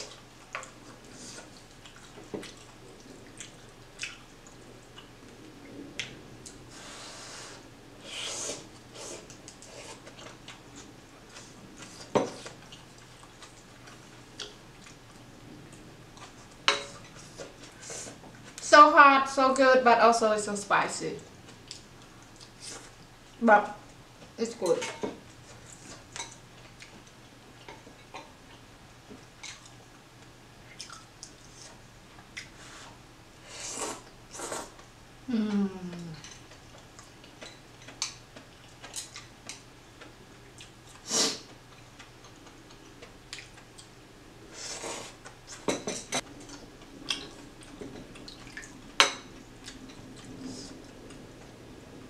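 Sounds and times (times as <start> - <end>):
person chewing: 0.0 - 5.1, 36.4 - 41.1
chewing with wet clicks: 1.6 - 6.6, 12.5 - 16.4, 21.4 - 23.4, 25.7 - 28.6, 29.3 - 31.4, 32.1 - 32.6, 36.3 - 44.0, 46.3 - 51.6
slurping noodles: 6.8 - 10.0, 33.5 - 34.8.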